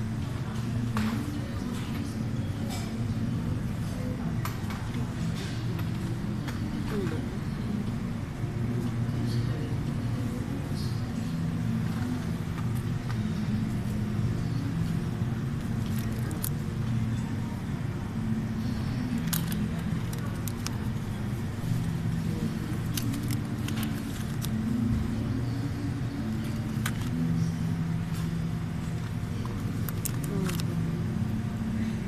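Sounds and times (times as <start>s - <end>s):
faint voices: 0.0s - 32.0s
steady low hum: 0.0s - 32.0s
plastic packaging crinkling: 15.8s - 16.6s, 19.2s - 21.0s, 22.7s - 24.6s, 29.5s - 30.8s.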